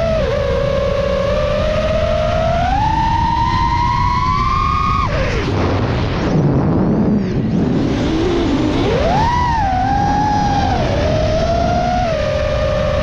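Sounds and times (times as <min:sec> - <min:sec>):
drone motors whining: 0:00.0 - 0:13.0
wind rumble on microphone: 0:00.0 - 0:13.0.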